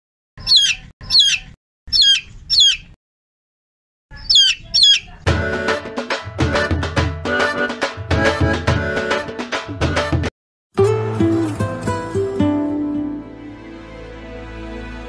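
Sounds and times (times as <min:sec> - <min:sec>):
chick peeping: 0:00.4 - 0:03.0, 0:04.1 - 0:05.3
background music with drums: 0:05.3 - 0:12.1.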